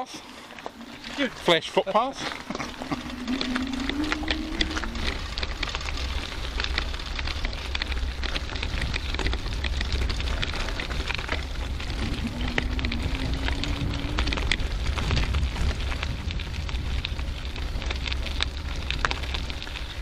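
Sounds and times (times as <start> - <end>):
bicycle tyres crackling on gravel: 0.0 - 20.0
bike clicks and rattles: 0.0 - 20.0
wind rumble on microphone: 2.4 - 20.0.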